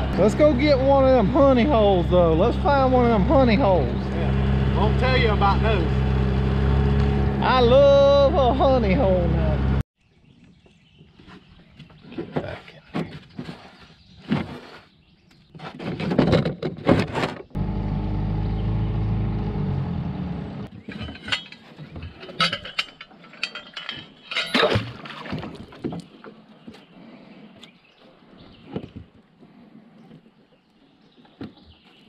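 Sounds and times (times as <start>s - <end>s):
outboard motor running: 0.0s - 9.8s, 17.6s - 20.7s
fishing gear knocking and clinking: 20.8s - 24.9s.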